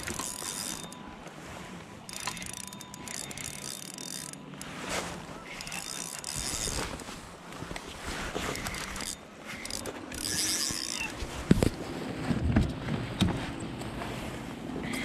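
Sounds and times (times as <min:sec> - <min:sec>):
fishing reel gears whirring: 0:00.0 - 0:01.3, 0:02.0 - 0:07.0, 0:08.5 - 0:11.4.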